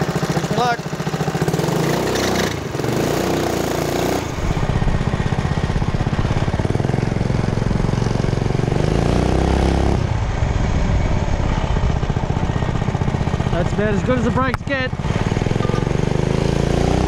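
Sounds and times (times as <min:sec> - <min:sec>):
small engine putter: 0:00.0 - 0:03.0.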